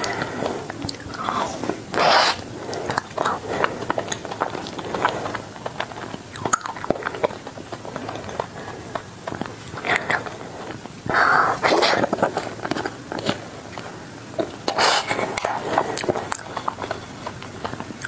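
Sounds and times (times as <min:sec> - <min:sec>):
wet mouth clicks: 0:00.0 - 0:03.4
crunchy ice cream bar chewing: 0:00.0 - 0:18.0.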